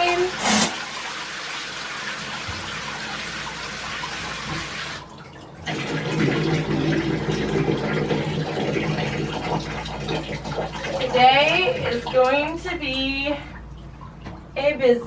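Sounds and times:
shower water spraying: 0:00.0 - 0:05.0.

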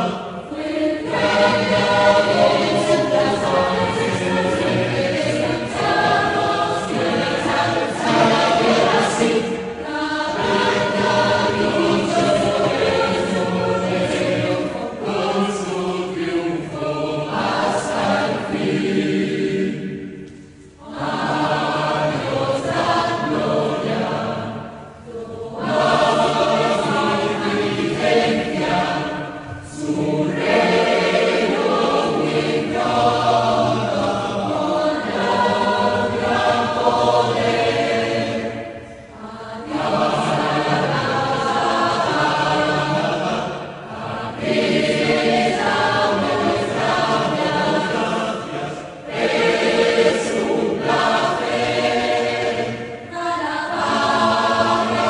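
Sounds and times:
choir singing: 0:00.0 - 0:55.0.

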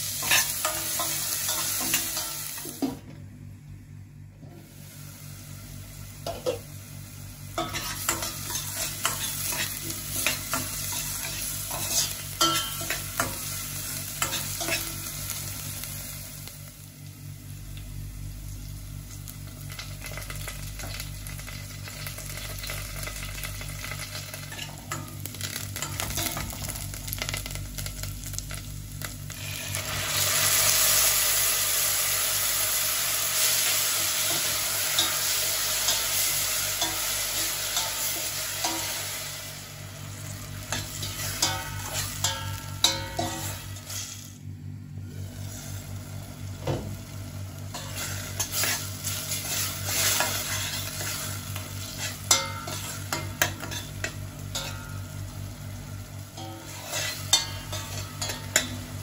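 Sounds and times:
onion frying in oil: 0:00.0 - 0:03.0, 0:04.6 - 0:59.0
loud sizzle of puree in pot: 0:00.0 - 0:03.1, 0:03.9 - 0:59.0
metal spoon scraping pot: 0:56.4 - 0:58.7.

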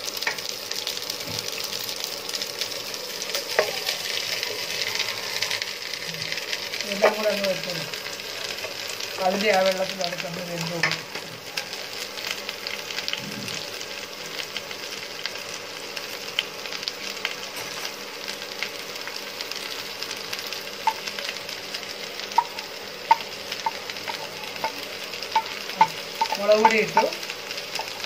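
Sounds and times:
oil popping: 0:00.0 - 0:11.4, 0:18.4 - 0:28.0
vegetables sizzling in oil: 0:00.0 - 0:28.0.

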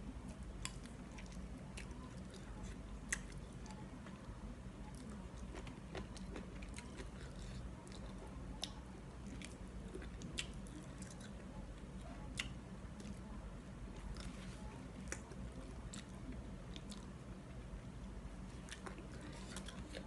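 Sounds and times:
steady low hum: 0:00.0 - 0:20.0
person chewing and smacking: 0:00.6 - 0:04.2, 0:04.9 - 0:11.4, 0:12.3 - 0:13.2, 0:14.0 - 0:17.2, 0:18.5 - 0:20.0.

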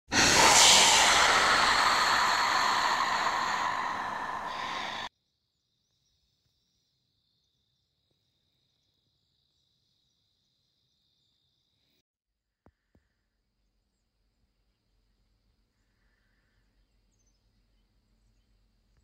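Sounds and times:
hissing sound effect hit: 0:00.1 - 0:05.1.

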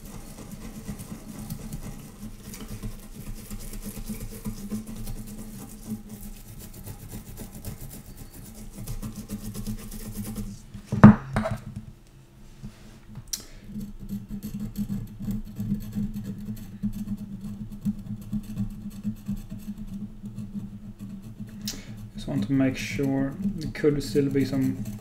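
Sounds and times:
rapid scrubbing: 0:00.0 - 0:10.7, 0:13.7 - 0:25.0
sharp knock: 0:11.0 - 0:11.6.

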